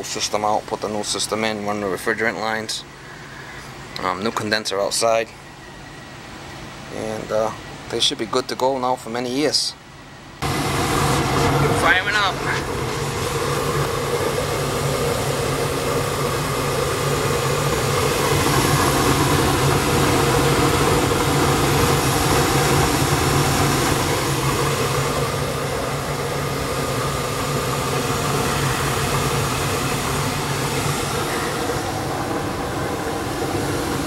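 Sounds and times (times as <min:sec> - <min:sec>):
gas burners rushing: 0:00.0 - 0:34.0
low hum: 0:09.8 - 0:34.0.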